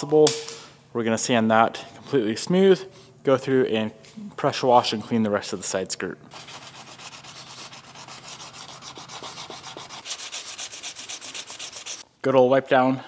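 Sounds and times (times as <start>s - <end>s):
sanding block scraping: 6.3s - 12.0s.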